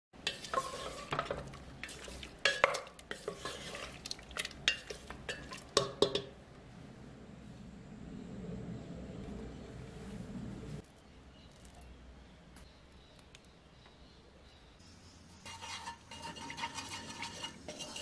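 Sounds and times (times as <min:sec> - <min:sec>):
spatula stirring thick sauce: 0:00.2 - 0:06.1, 0:15.4 - 0:18.0
spatula scraping metal pot: 0:00.2 - 0:06.3, 0:15.3 - 0:18.0.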